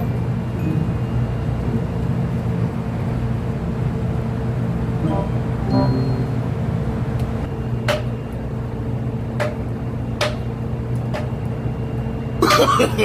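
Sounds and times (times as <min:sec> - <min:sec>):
ship machinery droning: 0:00.0 - 0:13.0
sharp knocks on steel deck: 0:07.9 - 0:08.1, 0:10.2 - 0:10.5.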